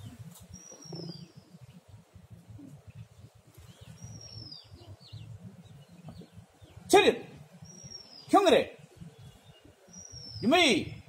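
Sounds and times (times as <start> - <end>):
short low bird chirps: 0.0 - 1.8.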